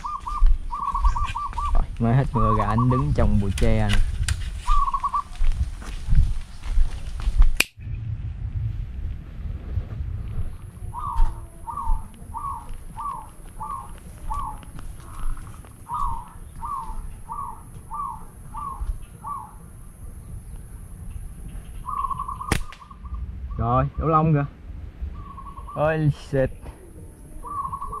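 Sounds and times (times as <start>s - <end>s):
dove cooing: 0.0s - 3.3s, 4.7s - 5.5s, 10.8s - 20.3s, 21.8s - 23.2s, 26.6s - 28.0s
slingshot snap: 7.6s - 7.8s, 22.5s - 22.8s.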